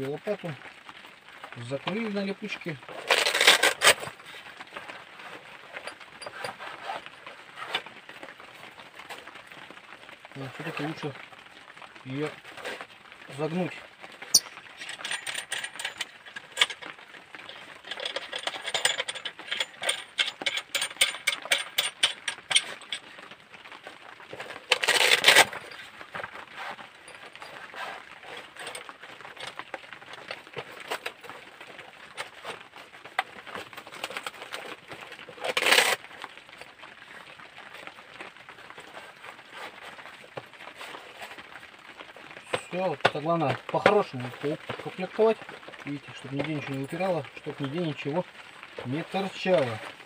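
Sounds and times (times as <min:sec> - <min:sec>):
metal shovel parts clinking: 0:03.0 - 0:04.1, 0:14.3 - 0:23.1, 0:24.4 - 0:26.0, 0:35.4 - 0:36.0
velcro flap tearing: 0:03.0 - 0:04.1, 0:24.6 - 0:25.6.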